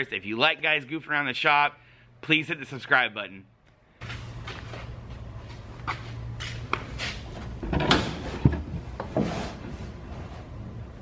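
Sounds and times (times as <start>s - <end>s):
rustles knocks and clunks: 4.0s - 10.6s.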